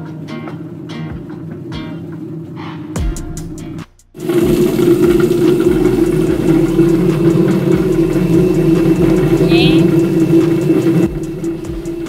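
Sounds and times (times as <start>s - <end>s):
potato peeling machine humming: 4.2s - 12.0s.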